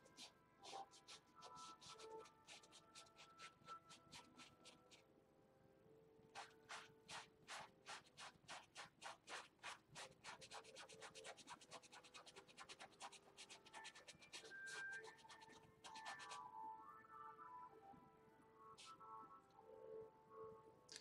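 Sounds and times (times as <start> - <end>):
paintbrush scratching on canvas: 0.0 - 5.0, 6.3 - 16.4.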